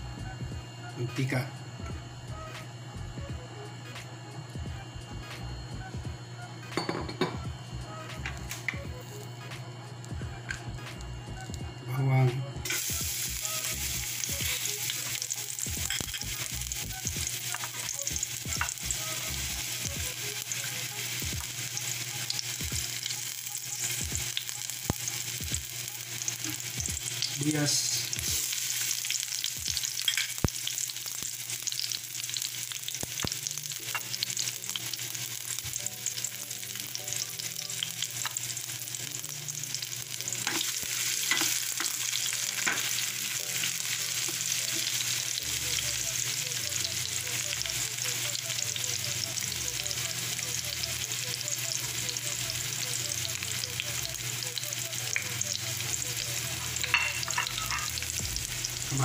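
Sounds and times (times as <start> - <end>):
garlic and onion sizzling in oil: 12.6 - 59.0.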